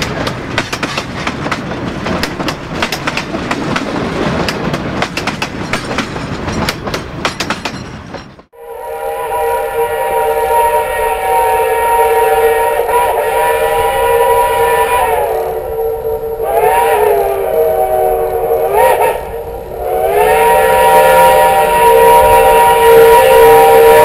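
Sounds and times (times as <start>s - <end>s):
steam locomotive whistle: 8.6s - 24.0s.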